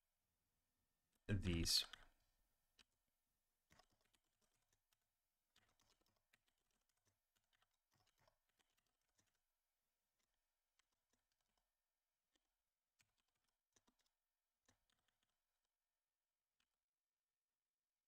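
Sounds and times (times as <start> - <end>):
faint computer keyboard typing: 3.6 - 16.0.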